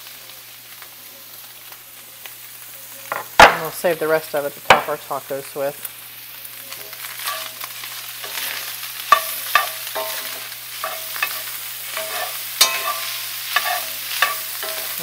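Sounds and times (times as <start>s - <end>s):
meat sizzling: 0.0s - 15.0s
spoon scraping and clinking on pan: 7.2s - 15.0s.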